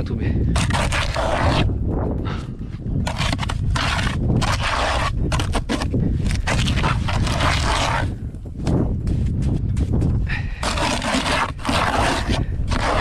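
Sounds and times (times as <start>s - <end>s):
tool scraping wet mortar: 0.0s - 1.8s, 2.9s - 8.2s, 10.3s - 13.0s.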